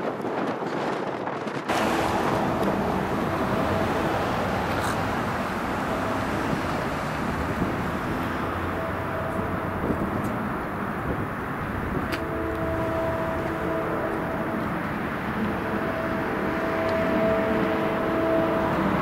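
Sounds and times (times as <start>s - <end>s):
train rumbling and hissing: 0.0s - 19.0s.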